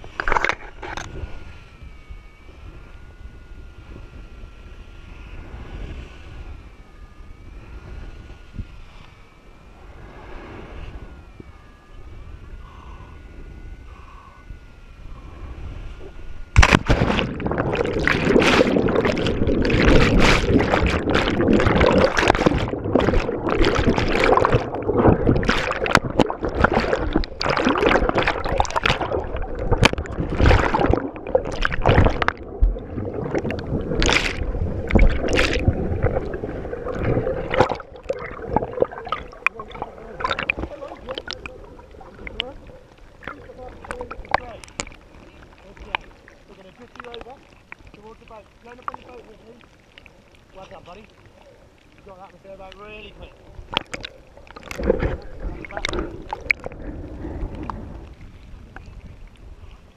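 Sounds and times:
underwater gurgling and bubbles: 0.0s - 59.9s
wind rushing over microphone: 9.7s - 44.8s, 54.7s - 59.7s
loud splash into water: 16.6s - 41.4s.

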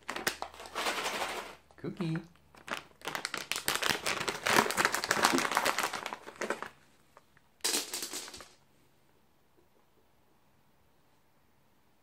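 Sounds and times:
treat packet rattling: 2.5s - 6.8s.

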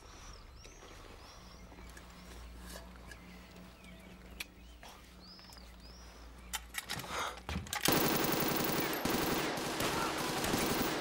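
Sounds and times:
submachine gun automatic burst: 7.9s - 11.0s.

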